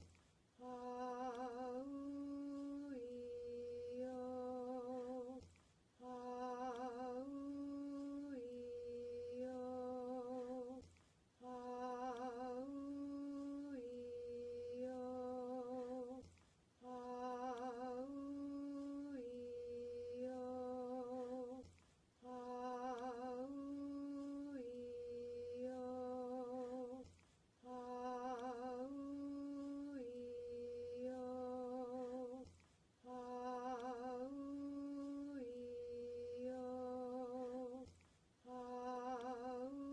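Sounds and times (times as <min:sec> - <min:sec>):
person softly chanting vowels: 0:22.2 - 0:39.9.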